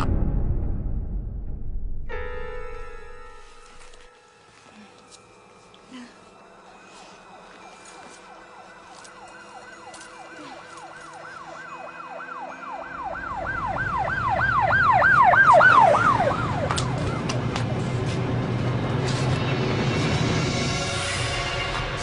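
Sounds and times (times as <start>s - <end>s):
low rumble: 0.0s - 4.0s
emergency siren yelping: 7.3s - 18.1s.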